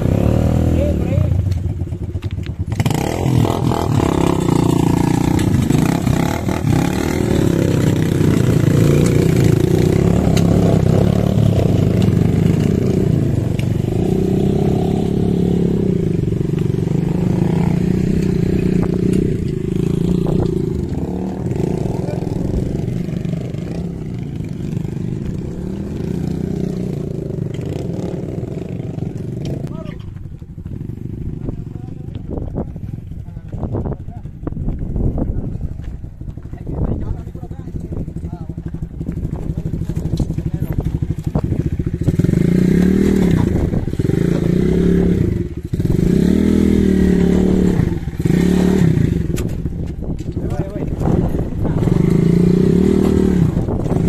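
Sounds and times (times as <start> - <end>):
motorcycle engines revving: 0.0 - 54.0.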